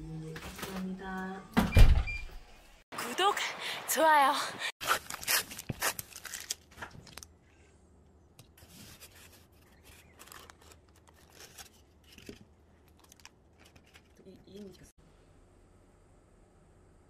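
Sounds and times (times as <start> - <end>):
plastic wrapping crinkling: 4.8 - 7.3.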